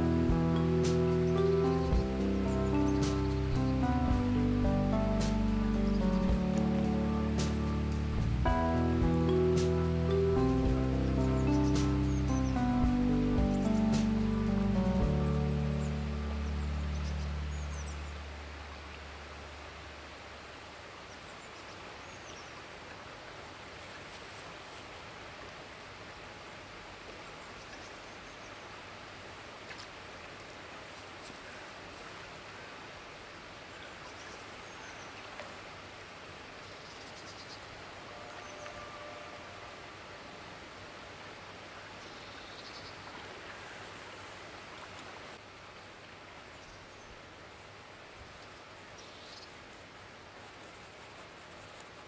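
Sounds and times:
background music: 0.0s - 18.4s
steady outdoor rush: 0.0s - 19.8s
outdoor background hiss: 0.0s - 52.0s.

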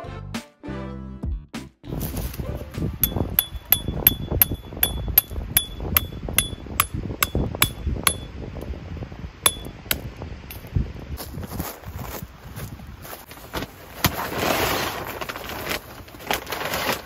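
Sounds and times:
hammer striking metal peg: 3.0s - 8.3s, 9.5s - 10.0s.

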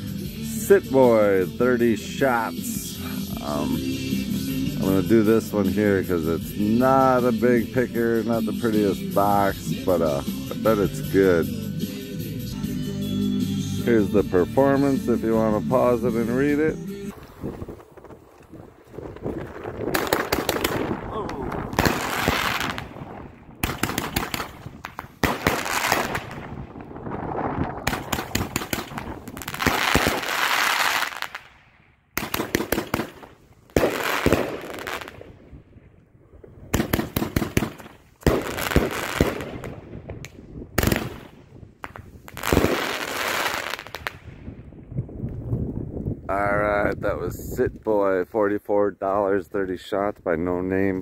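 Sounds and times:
firework stars crackling: 15.8s - 35.6s, 36.7s - 44.5s
firework bangs: 17.1s - 31.6s, 32.2s - 35.6s, 36.4s - 44.5s.

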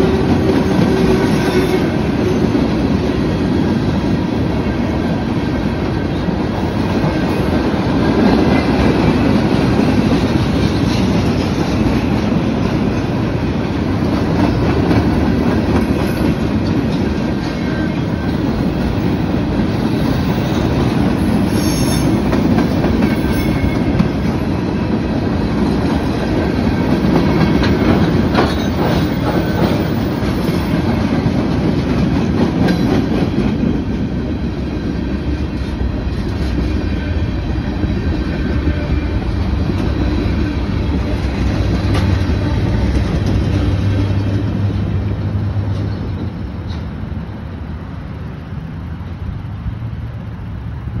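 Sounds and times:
freight train rumbling past: 0.0s - 51.0s
wheels clattering over rail joints: 22.0s - 34.1s.

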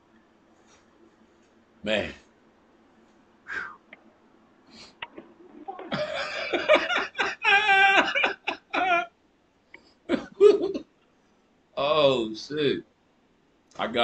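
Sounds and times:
man laughing heartily: 5.9s - 9.1s, 10.1s - 10.8s.

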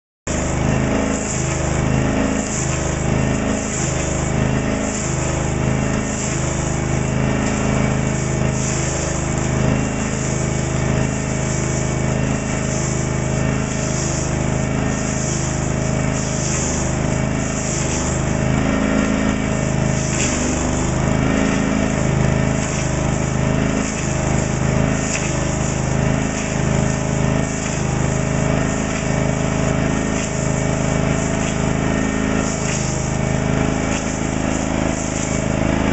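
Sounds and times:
cutter head milling log: 0.3s - 35.9s
petrol engine running under load: 0.3s - 35.9s.

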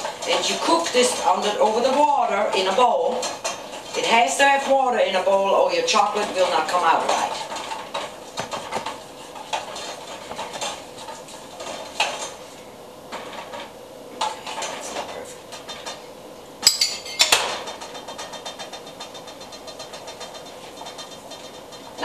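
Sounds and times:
ringing spoon clinks on metal: 16.6s - 17.3s.

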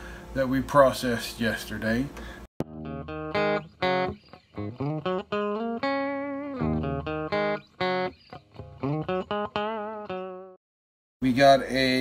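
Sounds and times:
plucked guitar melody: 2.6s - 10.6s.

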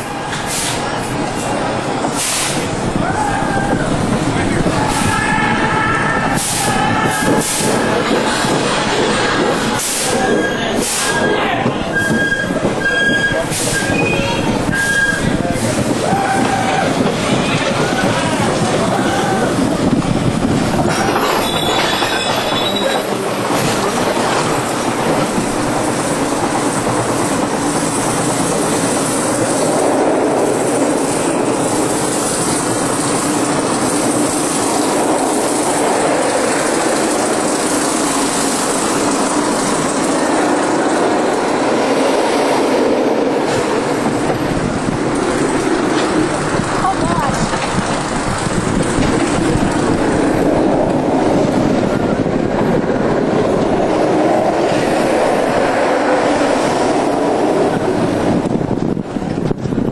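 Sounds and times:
roller coaster wheels rumbling on rail: 0.0s - 59.9s.

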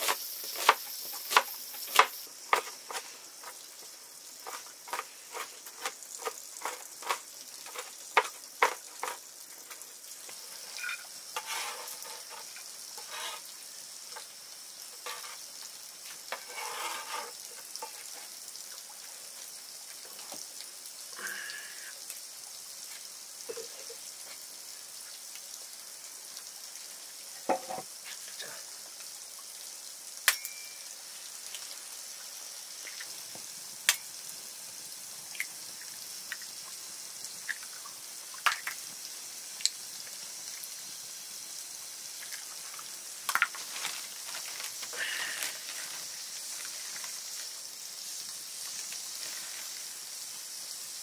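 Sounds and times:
food sizzling in hot oil: 0.0s - 51.0s
utensil knocking against pan: 27.5s - 27.8s.

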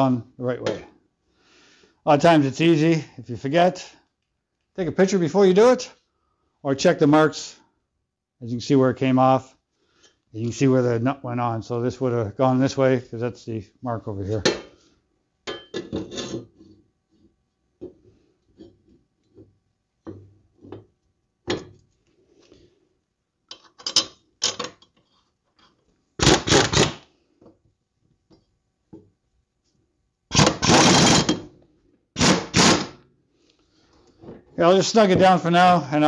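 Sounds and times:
small metallic clicks and knocks: 23.4s - 25.9s
tool rapid rattling: 30.3s - 31.4s.

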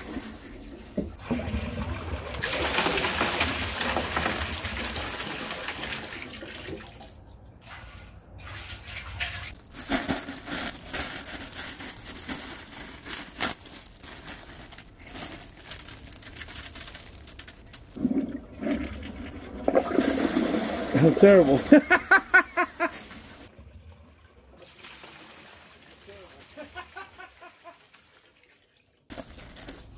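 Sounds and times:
water pouring into tank: 0.0s - 9.5s, 17.9s - 21.9s, 23.1s - 26.6s
plastic wrapping crinkling: 9.5s - 18.0s, 21.0s - 23.5s, 29.1s - 29.9s.

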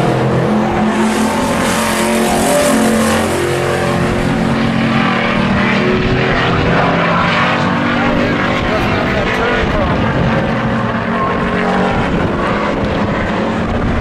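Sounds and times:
race truck engines running: 0.0s - 14.0s.

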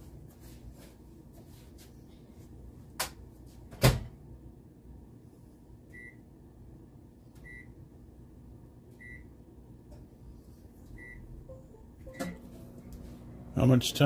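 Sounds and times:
microwave keypad beeps: 11.0s - 12.6s.

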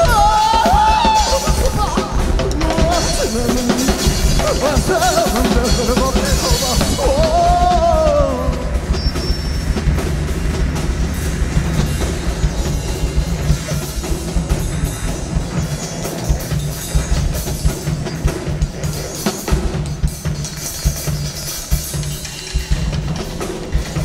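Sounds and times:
drum kit playing: 0.0s - 24.0s
low synthesizer drone: 2.2s - 18.8s.

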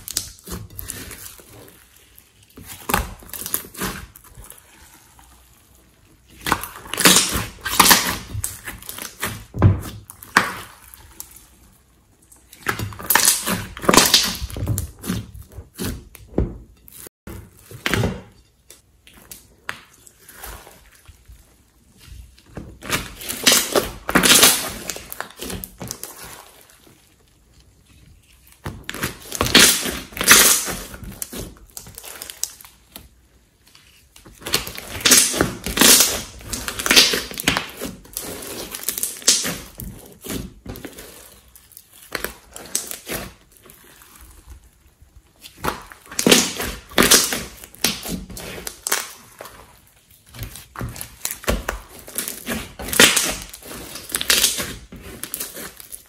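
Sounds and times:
slime squishing and crackling: 0.0s - 56.0s.

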